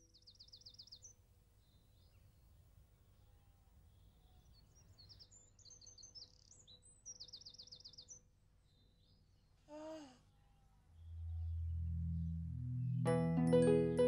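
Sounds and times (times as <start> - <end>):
small birds chirping: 0.0 - 13.2
rapid high descending bird notes: 10.9 - 14.0.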